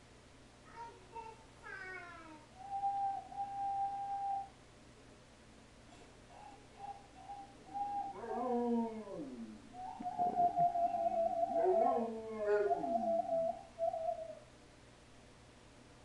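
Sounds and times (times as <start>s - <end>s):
dog whining and whimpering: 6.4s - 14.4s
dog howling: 7.4s - 14.4s.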